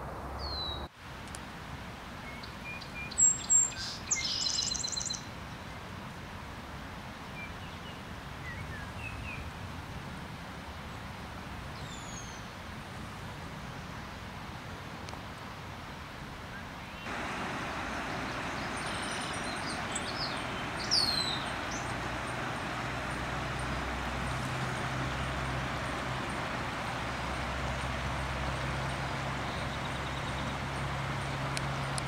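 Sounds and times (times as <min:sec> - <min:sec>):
high chirps: 0:17.1 - 0:22.6
steady rushing hiss: 0:17.1 - 0:32.0.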